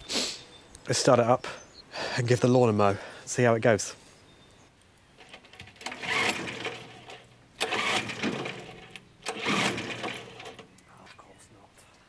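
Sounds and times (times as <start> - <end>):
lawnmower recoil starter whirr: 5.2 - 10.7.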